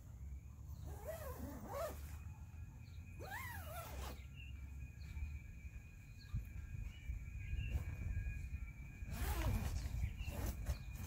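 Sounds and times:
steady low rumble: 4.4s - 10.3s.

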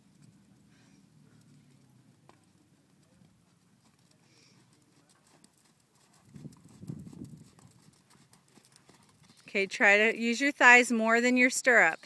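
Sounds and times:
horse hoofbeats on sand: 3.3s - 10.2s.

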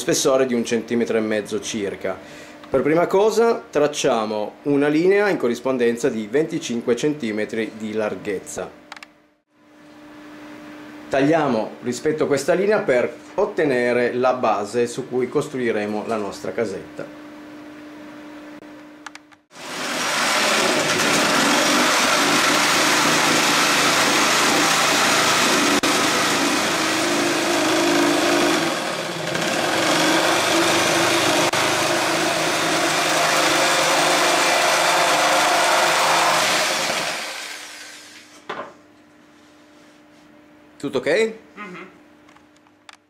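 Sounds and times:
electric jigsaw sawing wood: 19.5s - 38.2s.

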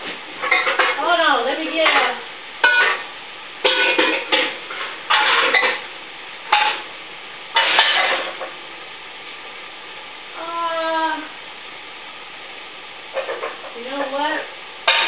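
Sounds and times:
pots and pans clanking: 0.0s - 1.1s, 1.7s - 5.9s, 6.5s - 6.9s, 7.5s - 8.6s, 13.1s - 14.2s.

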